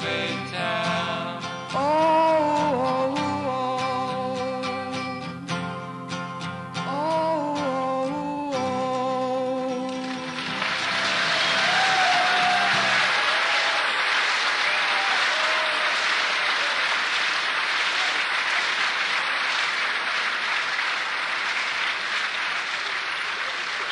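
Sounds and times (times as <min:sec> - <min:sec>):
song with guitar: 0:00.0 - 0:13.1
audience applauding: 0:09.8 - 0:23.9.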